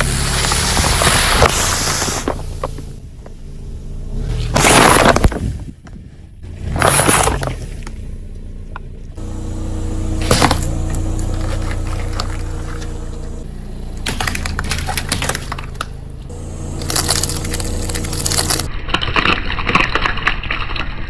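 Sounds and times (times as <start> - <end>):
crackling crunches: 0.0 - 3.0, 4.3 - 5.7, 9.2 - 20.8
car engine running: 0.0 - 5.4, 6.4 - 18.7
car tyre crushing things: 0.0 - 19.8
plastic bottles splitting: 4.5 - 5.5.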